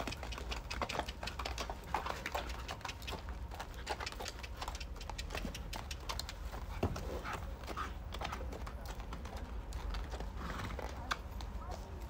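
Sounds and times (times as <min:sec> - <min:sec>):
lead rope tapping: 0:00.0 - 0:06.6.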